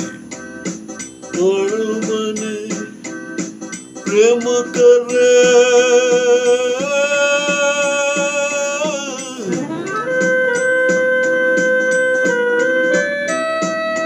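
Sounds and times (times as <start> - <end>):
man singing long held notes: 1.4 - 2.9, 4.1 - 10.2
plucked-string accompaniment: 9.2 - 14.0.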